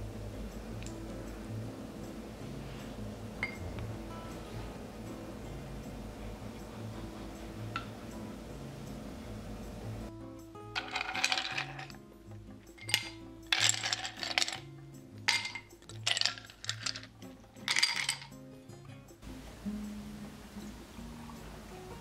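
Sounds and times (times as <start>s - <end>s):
low steady hum: 0.0s - 22.0s
ice cubes clinking in glass: 10.8s - 12.0s, 12.7s - 14.7s, 15.3s - 18.4s.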